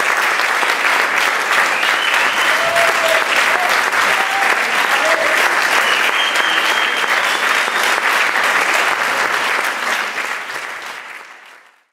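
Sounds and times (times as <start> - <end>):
crowd applauding: 0.0 - 11.9.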